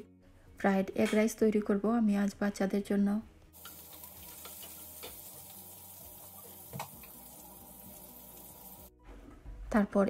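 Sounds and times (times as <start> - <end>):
onions sizzling in oil: 3.6 - 8.9.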